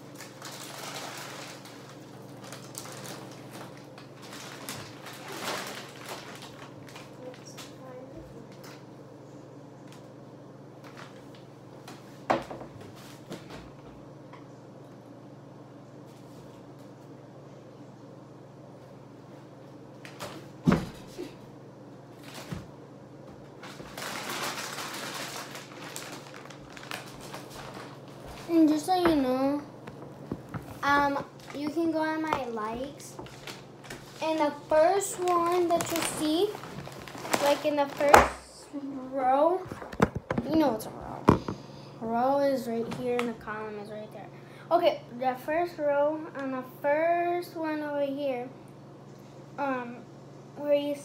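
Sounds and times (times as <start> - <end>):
steady low hum: 0.0 - 51.0
packages knocking and rustling: 0.2 - 7.7, 23.3 - 29.3, 29.9 - 38.5
rustling: 33.2 - 38.2.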